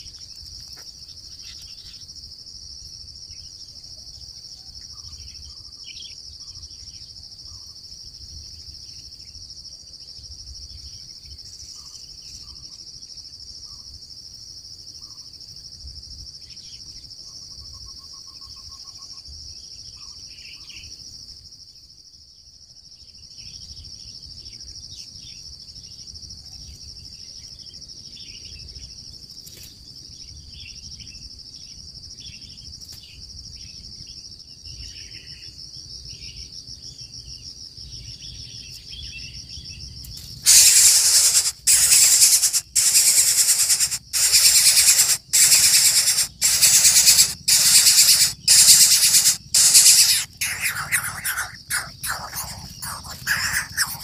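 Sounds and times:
insect trill: 0.0 - 54.0
bird notes: 40.5 - 54.0.

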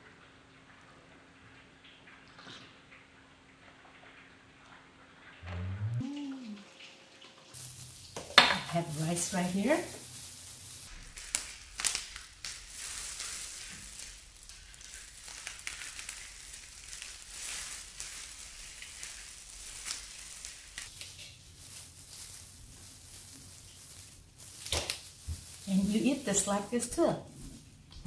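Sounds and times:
plastic gloves crinkling: 7.6 - 28.0
crab shell cracking and squishing: 11.2 - 18.0.

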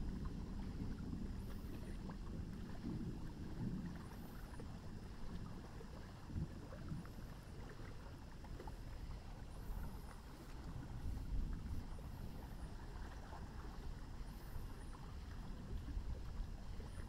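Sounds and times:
low uneven thunder rumble: 0.0 - 17.0.

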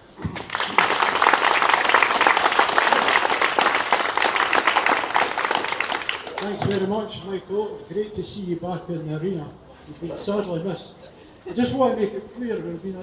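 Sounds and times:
crowd applauding: 0.0 - 6.9.

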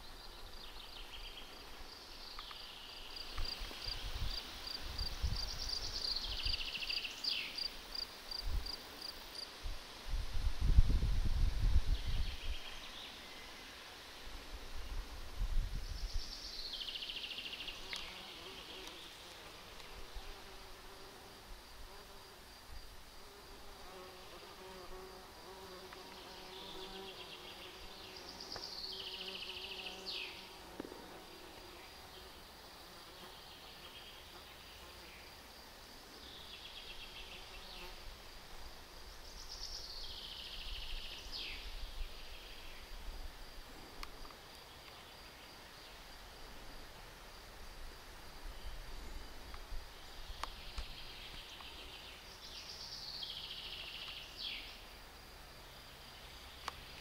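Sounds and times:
flying insect buzzing: 16.8 - 35.4, 36.4 - 38.4.

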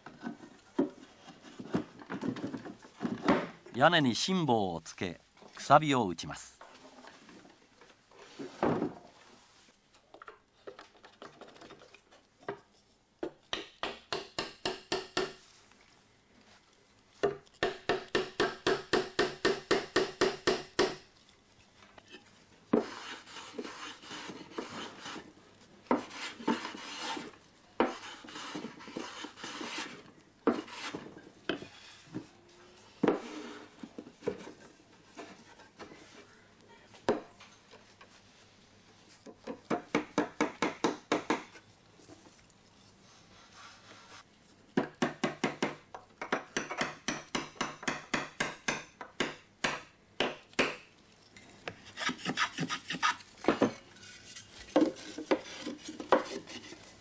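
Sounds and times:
hammer tapping wooden wedges: 13.2 - 15.4, 17.2 - 21.1, 39.2 - 41.6, 44.8 - 50.9, 54.6 - 56.7
wooden parts scraping and rubbing: 22.1 - 32.3, 33.0 - 36.2, 51.5 - 57.0.

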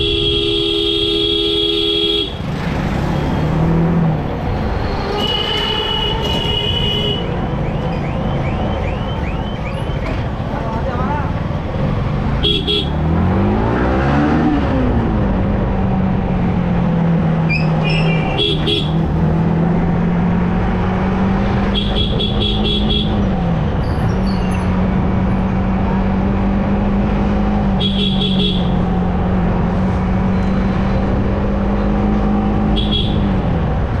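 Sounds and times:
vehicle horn beeping: 0.0 - 2.4, 5.2 - 7.4, 18.0 - 19.0, 21.7 - 23.2, 27.8 - 28.8.

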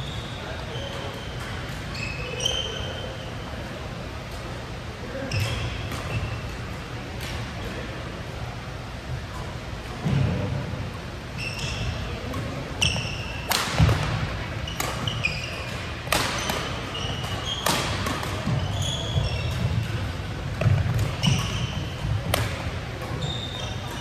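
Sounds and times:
shoes squeaking on court: 0.0 - 3.5, 5.1 - 6.9, 11.3 - 24.0
rackets hitting shuttlecock: 12.2 - 24.0.

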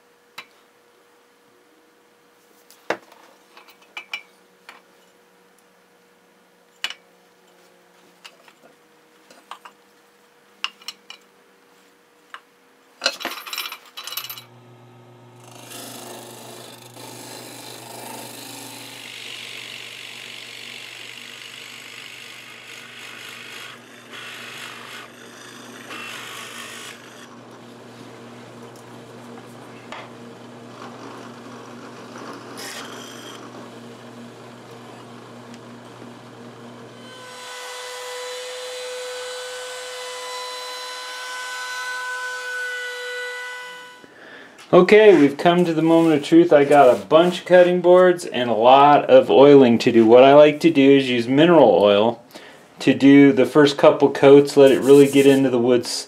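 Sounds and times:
drill press motor humming: 14.4 - 41.6
drill bit boring into wood: 15.4 - 44.1.

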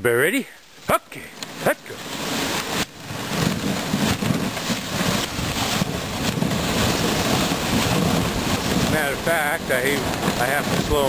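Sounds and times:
sled runners scraping over snow: 0.5 - 11.0
knocks and clatters: 2.5 - 11.0.

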